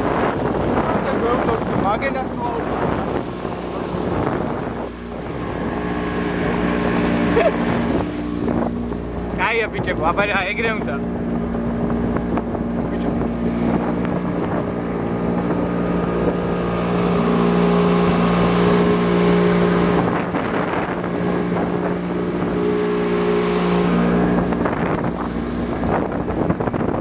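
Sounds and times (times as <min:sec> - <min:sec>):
motorboat engine drone: 0:00.0 - 0:27.0
water rushing: 0:00.0 - 0:27.0
wind on microphone: 0:00.0 - 0:27.0.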